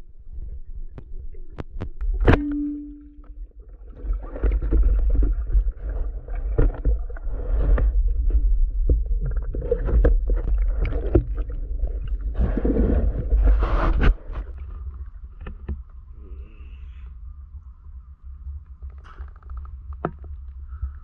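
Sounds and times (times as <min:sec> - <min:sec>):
muffled underwater rumble: 0:00.0 - 0:21.0
faint steady tone: 0:02.2 - 0:04.2.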